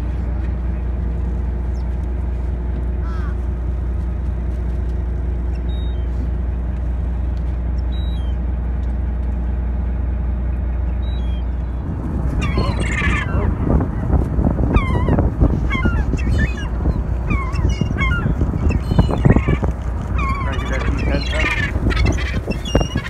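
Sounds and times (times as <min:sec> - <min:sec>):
gulls squawking overhead: 0:00.0 - 0:08.6, 0:10.0 - 0:23.0
steady low rumble: 0:00.0 - 0:23.0
faint short bird calls: 0:03.0 - 0:03.5
wind buffeting microphone: 0:11.2 - 0:23.0.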